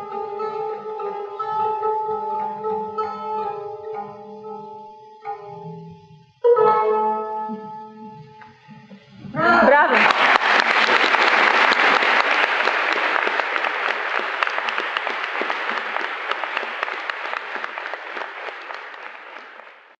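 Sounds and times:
audience applauding: 9.4s - 20.0s.

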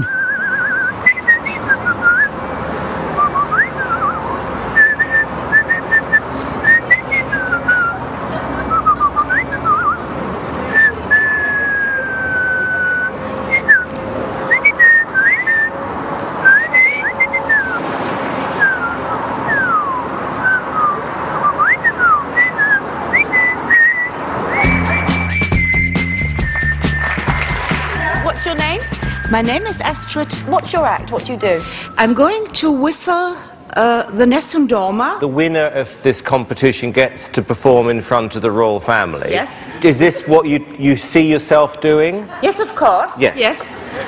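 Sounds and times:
person whistling: 0.0s - 2.3s, 3.2s - 8.0s, 10.8s - 13.9s, 14.5s - 15.7s, 16.4s - 17.8s, 18.6s - 32.3s
quiet background music: 26.9s - 33.2s.

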